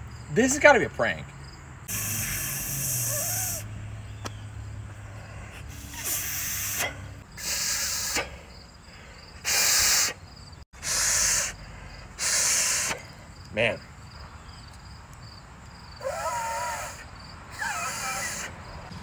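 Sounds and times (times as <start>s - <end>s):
breath blown through a stem: 1.9s - 3.7s, 5.5s - 8.4s, 10.8s - 11.6s.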